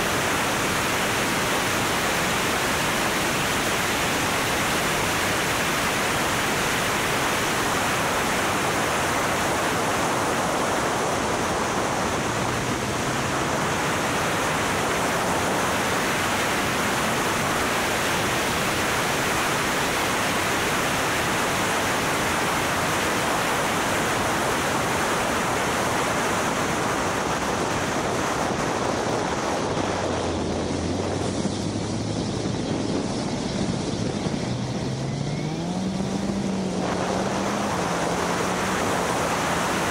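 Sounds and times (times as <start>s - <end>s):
wind rushing over microphone: 0.0s - 39.9s
car engine revving: 33.7s - 39.9s.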